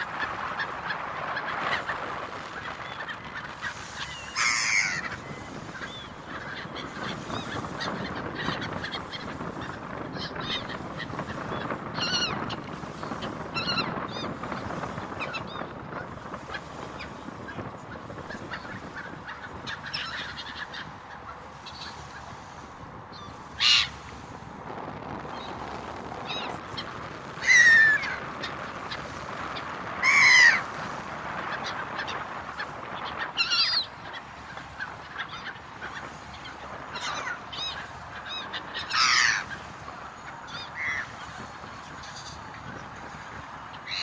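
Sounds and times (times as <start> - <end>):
gulls crying: 0.0 - 44.0
water and boat noise: 0.0 - 44.0.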